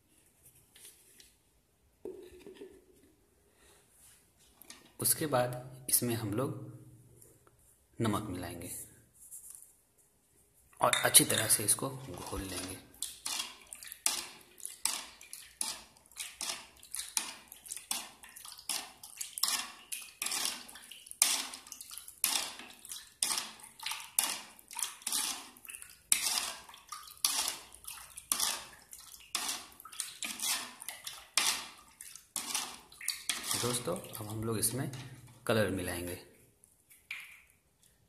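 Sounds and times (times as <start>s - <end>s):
plastic spoon stirring water in bowl: 2.0s - 3.2s, 10.7s - 38.0s.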